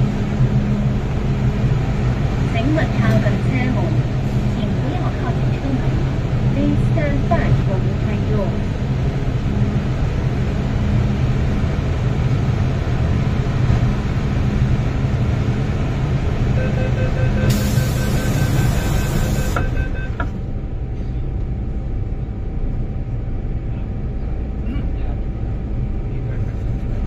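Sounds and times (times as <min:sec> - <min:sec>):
train motor and wheel rumble: 0:00.0 - 0:27.0
standstill hum: 0:16.4 - 0:22.1
pulsing high braking tone: 0:16.5 - 0:20.3
air hissing: 0:17.5 - 0:19.7.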